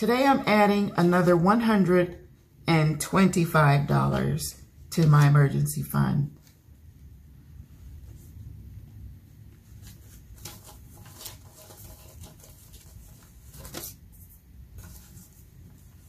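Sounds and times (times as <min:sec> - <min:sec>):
paper and plastic rustling: 0:09.6 - 0:16.0.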